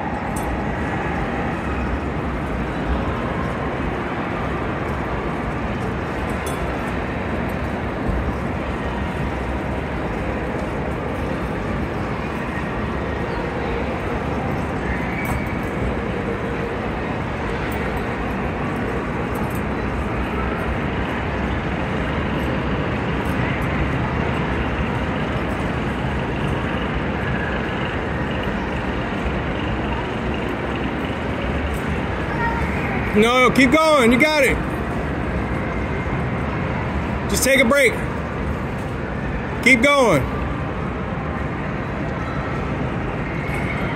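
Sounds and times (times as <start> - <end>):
indoor hall background din: 0.0 - 43.9.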